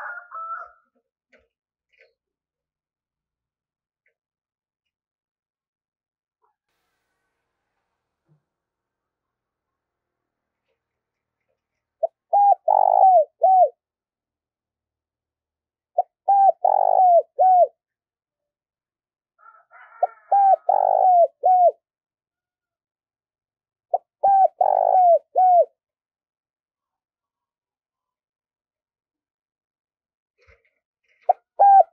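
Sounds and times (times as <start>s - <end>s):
dove cooing: 12.0s - 13.8s, 16.0s - 17.8s, 20.0s - 21.8s, 23.9s - 25.7s, 31.3s - 31.9s.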